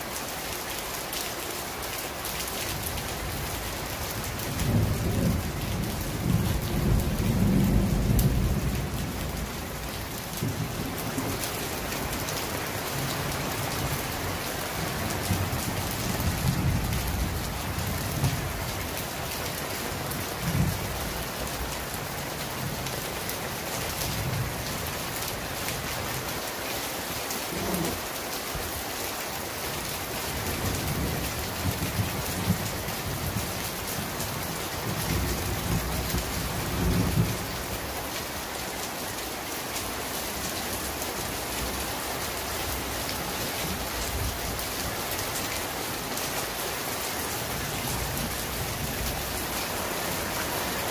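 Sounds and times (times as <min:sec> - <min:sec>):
heavy rain pouring: 0:00.0 - 0:50.9
low thunder rumbles: 0:04.6 - 0:11.4.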